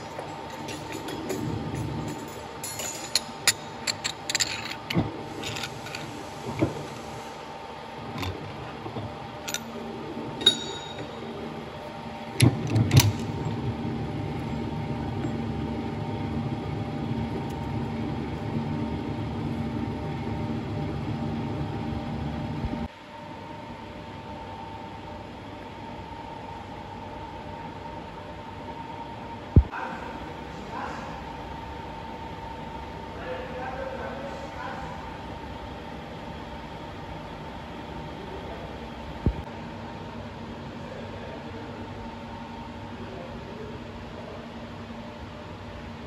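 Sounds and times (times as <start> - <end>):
metallic clinks and knocks: 0.0 - 6.1, 10.4 - 11.1
machine hum: 0.0 - 39.6.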